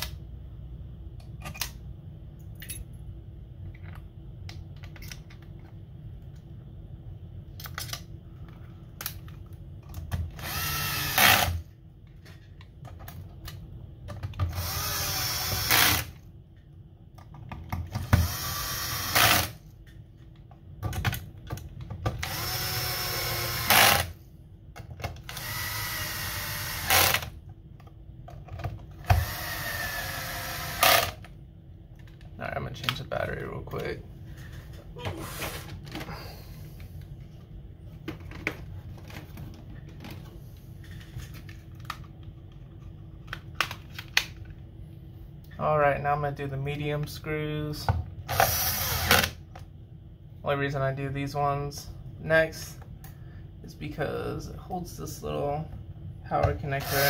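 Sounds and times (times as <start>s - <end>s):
cordless power driver whining: 10.3s - 11.6s, 14.5s - 16.2s, 18.0s - 19.6s, 22.2s - 24.2s, 25.3s - 27.3s, 29.0s - 31.2s, 48.3s - 49.4s, 56.8s - 57.0s.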